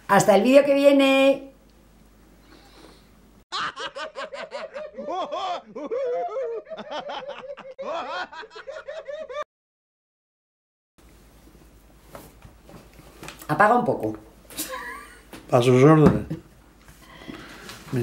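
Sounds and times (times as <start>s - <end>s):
person laughing: 3.5s - 9.4s, 14.6s - 15.3s.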